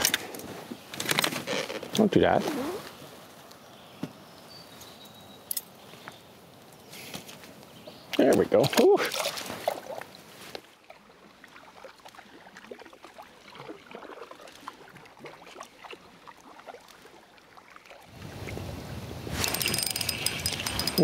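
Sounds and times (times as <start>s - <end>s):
small splashes and drips: 8.1s - 10.2s, 10.8s - 18.1s
water lapping against a board: 8.5s - 18.1s.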